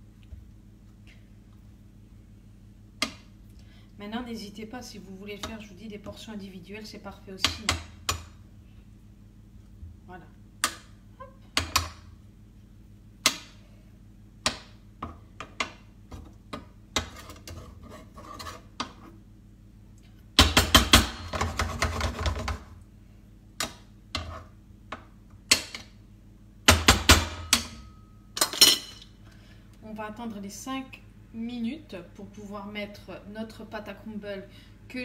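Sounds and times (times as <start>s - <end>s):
utensil scraping frying pan: 17.0s - 19.2s.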